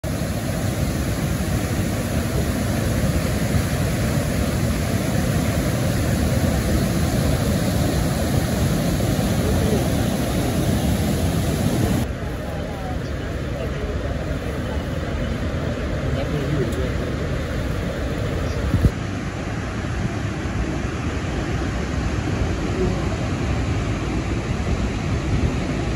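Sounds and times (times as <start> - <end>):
river rapids rushing over rocks: 0.0 - 19.4.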